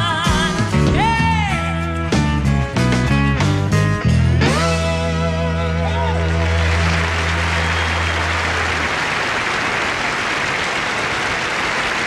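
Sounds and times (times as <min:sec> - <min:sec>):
large audience applauding: 0:05.7 - 0:12.0.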